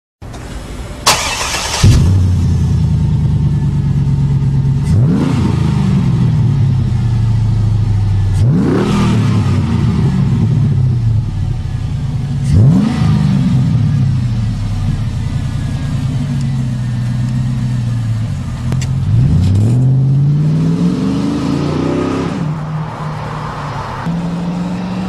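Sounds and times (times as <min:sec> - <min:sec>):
engine idling: 0:00.2 - 0:05.0, 0:10.6 - 0:12.8, 0:13.6 - 0:19.1
engine revving: 0:01.1 - 0:03.3, 0:04.8 - 0:06.8, 0:07.9 - 0:11.4, 0:12.4 - 0:22.7, 0:23.5 - 0:25.0.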